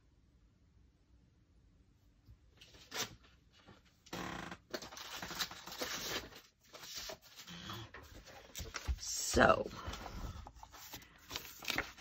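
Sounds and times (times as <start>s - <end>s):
paper rustling and crinkling: 2.6s - 4.0s, 4.7s - 12.0s.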